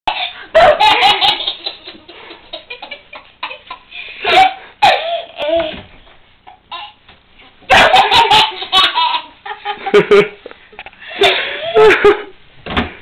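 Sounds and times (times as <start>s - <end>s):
toddler laughing: 7.7s - 9.4s.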